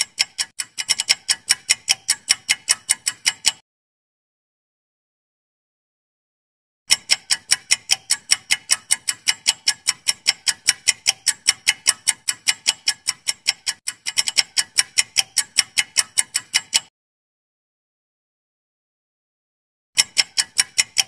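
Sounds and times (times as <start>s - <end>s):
countdown timer ticking: 0.0s - 3.6s, 6.9s - 16.9s, 20.0s - 21.0s.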